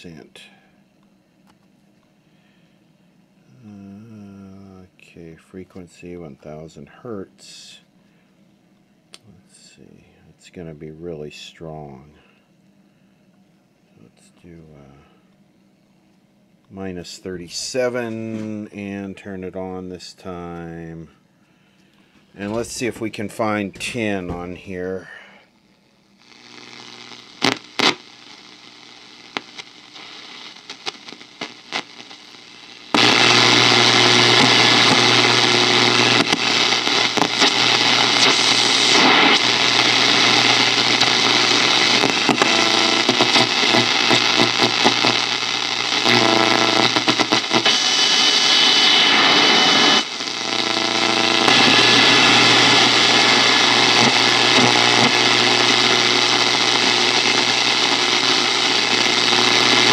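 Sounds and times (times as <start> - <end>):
radio shortwave static hiss: 0.0 - 0.8, 3.4 - 7.9, 16.7 - 59.9
radio dial clicks: 32.9 - 59.9.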